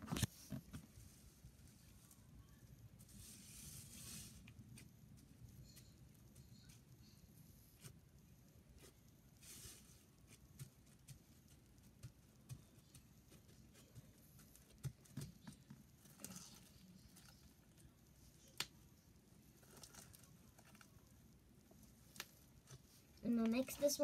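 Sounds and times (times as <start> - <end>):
soft clicks and rustles of slime: 12.5 - 18.8, 19.6 - 23.8.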